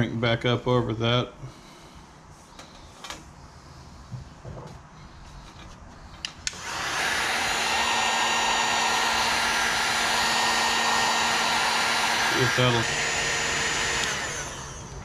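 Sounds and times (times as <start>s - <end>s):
sharp clicks: 6.2s - 6.7s, 13.9s - 14.2s
heat gun blowing hot air: 6.2s - 15.0s.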